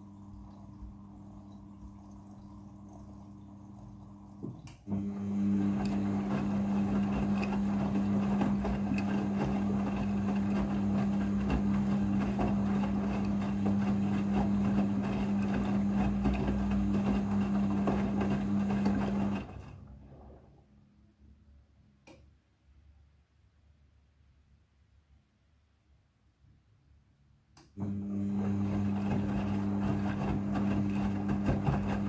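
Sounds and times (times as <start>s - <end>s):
washing machine motor hum: 0.0s - 21.1s, 27.8s - 32.0s.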